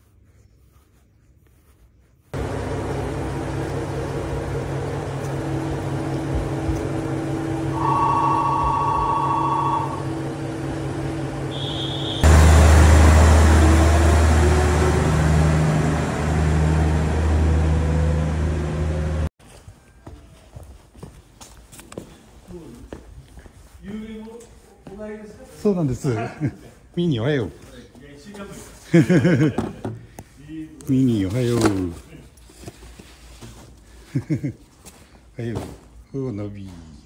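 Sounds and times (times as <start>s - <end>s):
diesel railcar engine: 2.4s - 19.3s
two-note tone: 7.6s - 10.3s
brief high tone: 7.7s - 10.3s, 11.5s - 12.3s.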